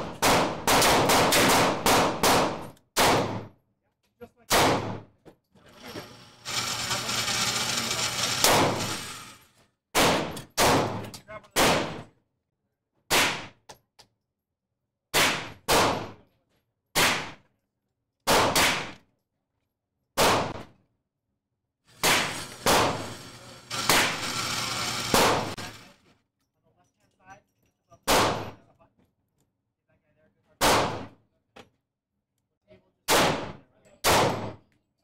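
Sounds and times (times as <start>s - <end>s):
gunshots with echo: 0.0s - 3.5s.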